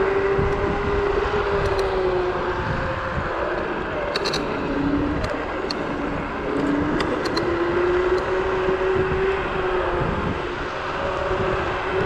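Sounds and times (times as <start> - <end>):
electric scooter motor whine: 0.0 - 12.0
wind rush on microphone: 0.0 - 12.0.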